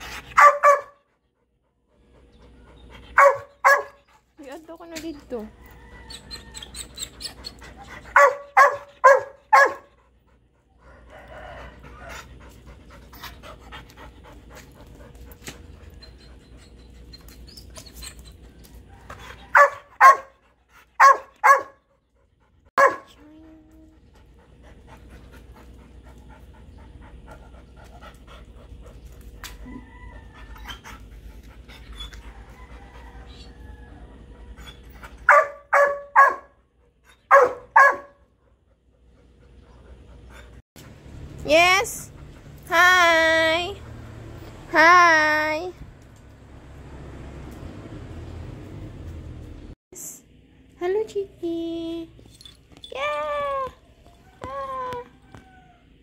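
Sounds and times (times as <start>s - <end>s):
dog panting: 0.0s - 35.4s, 36.8s - 44.7s
dog barking: 0.4s - 1.0s, 3.2s - 4.0s, 8.1s - 9.9s, 19.5s - 20.4s, 21.0s - 21.8s, 22.8s - 23.2s, 35.2s - 36.6s, 37.3s - 38.2s.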